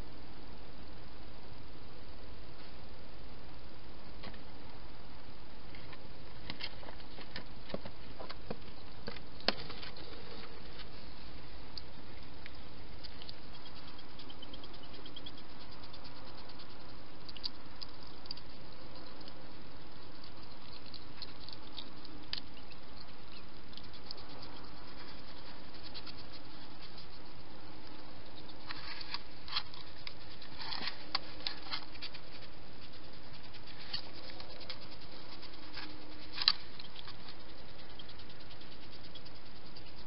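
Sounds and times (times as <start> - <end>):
steady hiss: 0.0 - 40.0
hedgehogs crunching food: 11.7 - 40.0.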